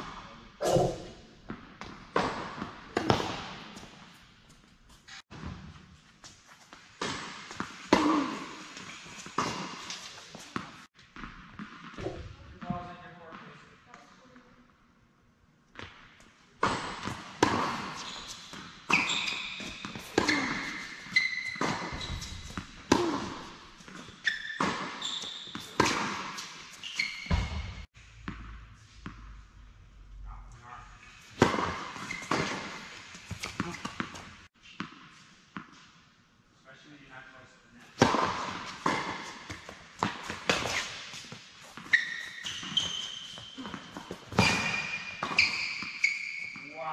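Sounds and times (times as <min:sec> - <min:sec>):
tennis ball struck by racket: 0:00.6 - 0:03.8
tennis ball bouncing: 0:00.8 - 0:04.0, 0:31.4 - 0:35.8, 0:38.0 - 0:46.1
racquets hitting tennis ball: 0:15.8 - 0:29.2, 0:38.0 - 0:46.7
shoe squeaks on court: 0:17.5 - 0:22.7, 0:23.9 - 0:27.9, 0:31.7 - 0:34.3, 0:38.8 - 0:46.9.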